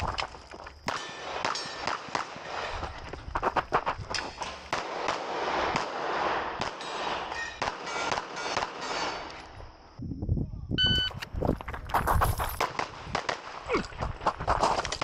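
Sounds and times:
short electronic beep: 10.8 - 11.2.

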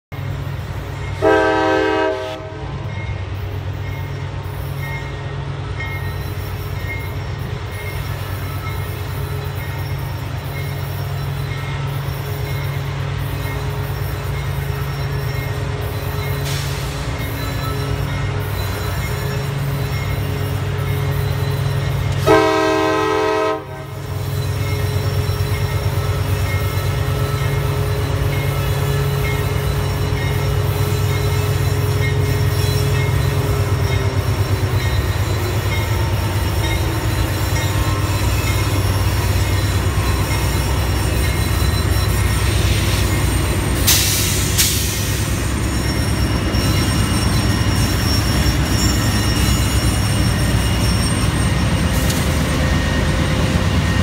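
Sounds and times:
low rumble of diesel locomotives: 0.0 - 54.0
locomotive horn blast: 1.2 - 2.8, 22.2 - 24.0
wheels squealing: 24.0 - 54.0.

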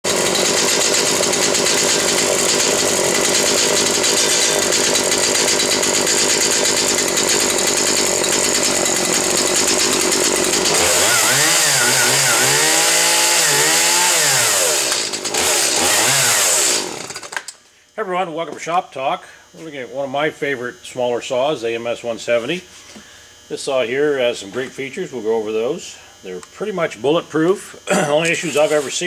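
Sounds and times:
chainsaw engine revving: 0.1 - 17.5, 27.9 - 29.0.

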